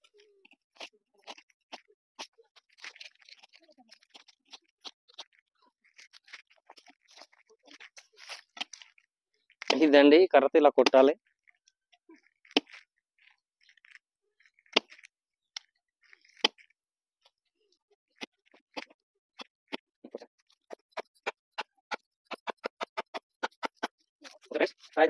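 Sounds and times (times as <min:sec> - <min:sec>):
wooden stick cracking fruit rind: 0:00.4 - 0:09.9, 0:10.8 - 0:17.4, 0:18.2 - 0:24.9.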